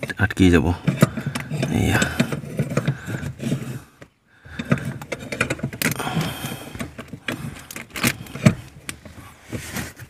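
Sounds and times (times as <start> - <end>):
metal pedal lock clicking: 6.6 - 9.0.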